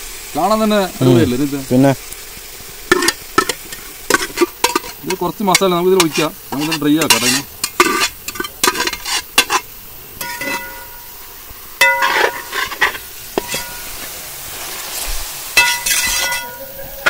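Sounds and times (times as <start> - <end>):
meat sizzling: 0.0 - 17.0
metal spatula stirring in a pot: 2.9 - 11.1, 11.8 - 14.1, 15.6 - 17.0
metal spoon scraping a steel pot: 2.9 - 11.1, 11.8 - 14.0, 15.6 - 17.0
metal clinks against a pot: 10.2 - 11.1, 11.8 - 13.9, 15.6 - 16.6.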